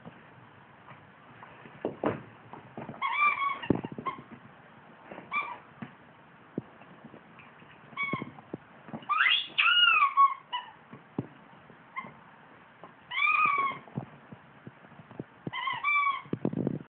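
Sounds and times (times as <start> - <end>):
rubber squeak toy squeaking: 3.0 - 4.3, 5.3 - 5.6, 7.9 - 8.4, 9.0 - 10.8, 13.1 - 13.9, 15.5 - 16.4.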